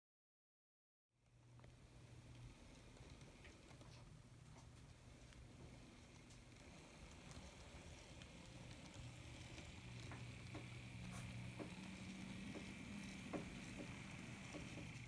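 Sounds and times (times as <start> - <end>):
model train motor humming: 5.1 - 15.0
wheels clicking on track: 5.6 - 15.0.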